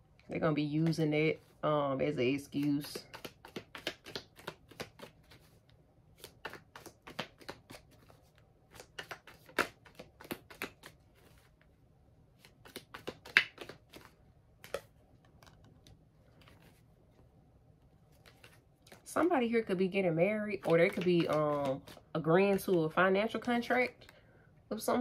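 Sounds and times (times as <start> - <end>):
cards being shuffled: 2.3 - 11.8, 12.4 - 17.2, 18.0 - 19.1, 20.5 - 24.2.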